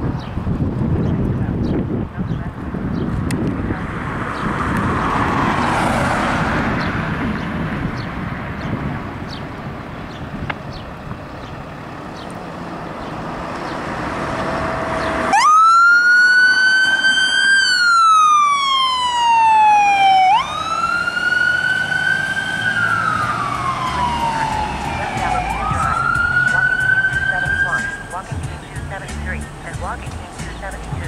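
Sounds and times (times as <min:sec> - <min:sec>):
ambulance engine: 0:01.2 - 0:31.0
siren wailing: 0:14.4 - 0:28.9.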